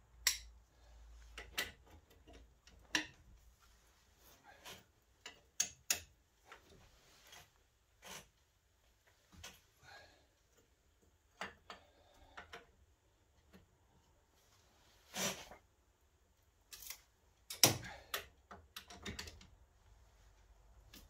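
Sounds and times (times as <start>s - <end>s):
spanner clicking and knocking: 1.3s - 3.2s.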